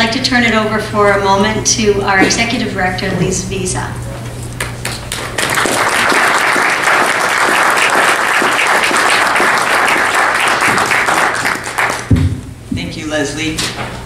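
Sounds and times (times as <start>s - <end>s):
audience clapping: 4.6s - 12.4s.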